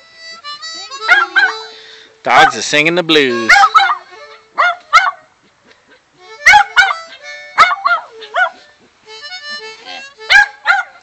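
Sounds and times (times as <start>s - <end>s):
harmonica chords: 0.0s - 5.4s, 6.0s - 11.0s
dog yelping and howling: 1.0s - 1.8s, 3.5s - 5.3s, 6.4s - 8.7s, 10.2s - 11.0s.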